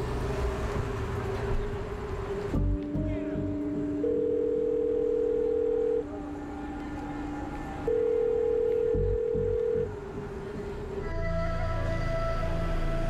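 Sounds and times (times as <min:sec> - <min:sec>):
low background drone: 0:01.4 - 0:13.0
telephone ringback tone: 0:04.0 - 0:06.1, 0:07.9 - 0:09.9.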